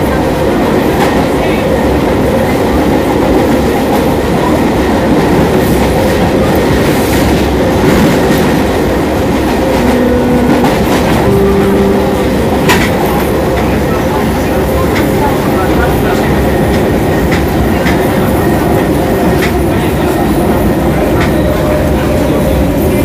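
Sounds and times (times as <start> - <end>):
wheels clacking on rails: 0.0 - 23.0
brief steady hums: 9.8 - 12.7.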